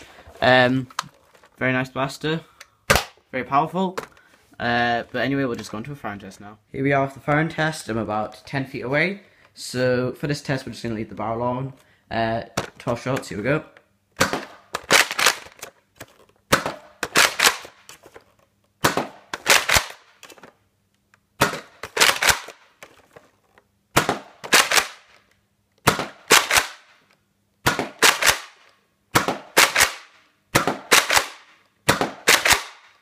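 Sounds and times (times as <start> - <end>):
toy blaster plastic clacks: 14.8 - 16.3.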